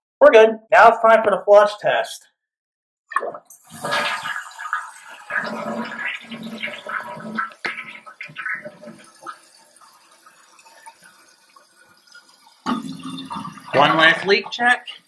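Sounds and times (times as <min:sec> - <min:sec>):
toilet flushing: 0:03.5 - 0:15.0.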